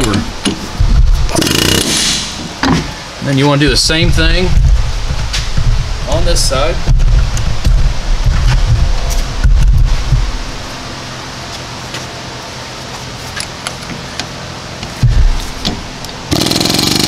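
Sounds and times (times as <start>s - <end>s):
exhaust fan hum: 0.0s - 17.0s
pneumatic air hammer: 1.3s - 2.5s, 16.3s - 17.0s
short low thump: 4.1s - 10.5s, 15.0s - 15.9s.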